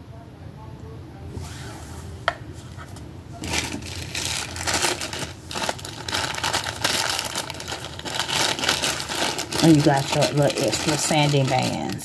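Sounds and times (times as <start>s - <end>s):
plastic bag crinkling: 3.4s - 12.0s.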